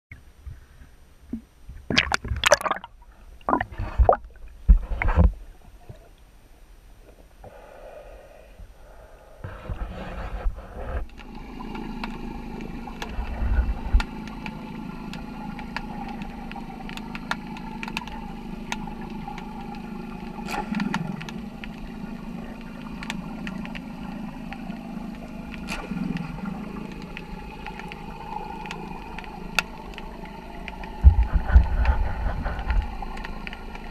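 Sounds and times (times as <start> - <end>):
muffled underwater hum: 0.1 - 33.9
faint underwater clicks: 8.6 - 33.9.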